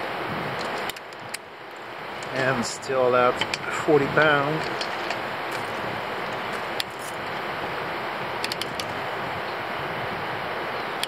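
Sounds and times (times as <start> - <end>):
steady background hiss: 0.0 - 11.0
torque wrench clicks: 8.4 - 8.9.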